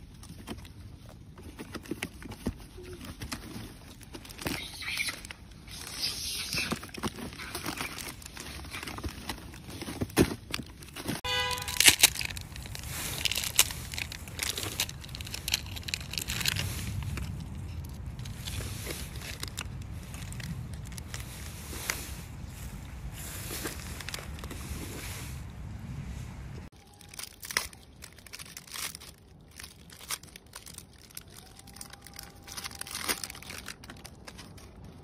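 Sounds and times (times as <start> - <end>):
plastic wrappers crinkling and tearing: 0.0 - 25.0, 26.7 - 35.0
steady low rumble: 11.7 - 26.7.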